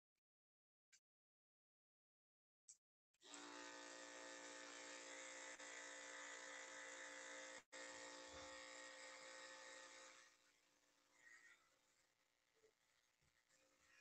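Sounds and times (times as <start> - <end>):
electric clippers buzzing: 3.2 - 10.3.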